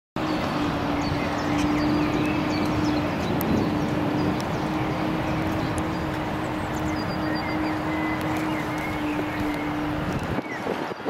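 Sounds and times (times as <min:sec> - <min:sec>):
small birds chirping: 0:00.2 - 0:10.7
steady rushing noise: 0:00.2 - 0:11.0
constant low hum: 0:00.3 - 0:10.4.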